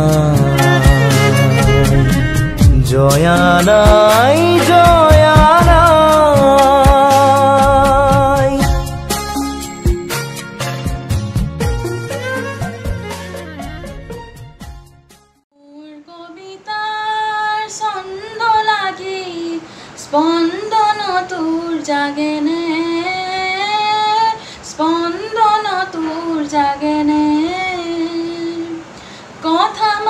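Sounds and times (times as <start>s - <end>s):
woman singing unaccompanied: 0.0s - 9.0s, 15.5s - 30.0s
music passage: 0.0s - 15.4s.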